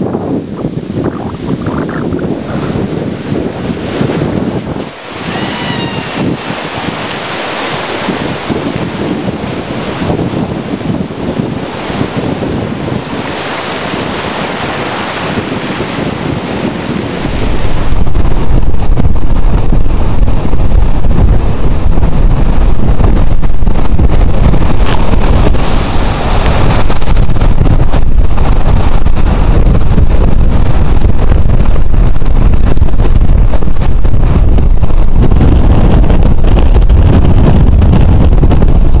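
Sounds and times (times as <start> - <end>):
strong wind: 0.0 - 39.0
wind rumbling on microphone: 0.0 - 39.0
surf breaking: 0.3 - 39.0.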